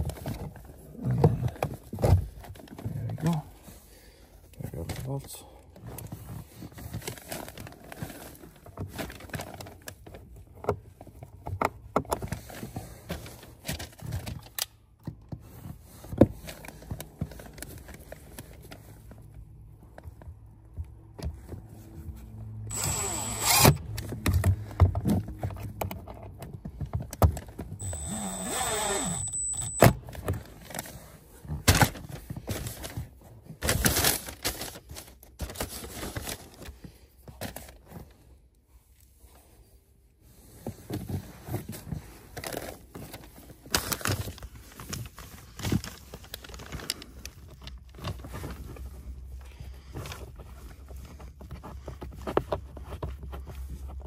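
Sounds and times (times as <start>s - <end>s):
power driver whirring: 22.7s - 23.9s, 27.8s - 30.0s.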